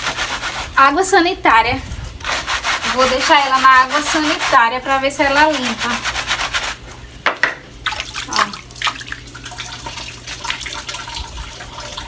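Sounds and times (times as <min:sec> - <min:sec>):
water splashing in sink: 0:07.8 - 0:12.0.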